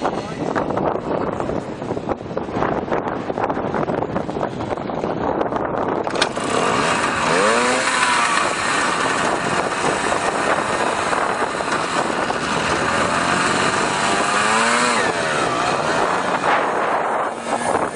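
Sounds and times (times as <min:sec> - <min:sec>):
motorcycle engine revving: 0:06.0 - 0:17.9.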